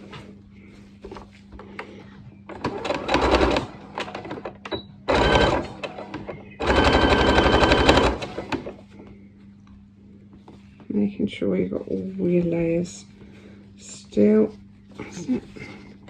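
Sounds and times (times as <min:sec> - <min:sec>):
sewing machine stitching: 0:02.5 - 0:04.4, 0:05.1 - 0:08.7.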